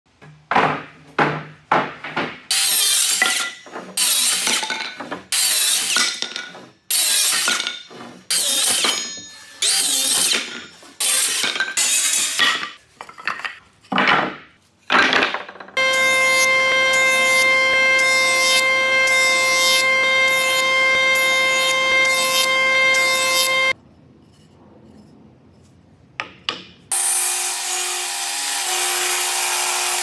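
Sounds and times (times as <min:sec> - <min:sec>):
wooden boards knocking: 0:00.1 - 0:02.5, 0:13.9 - 0:15.8
circular saw cutting wood: 0:15.8 - 0:23.8, 0:26.9 - 0:30.0.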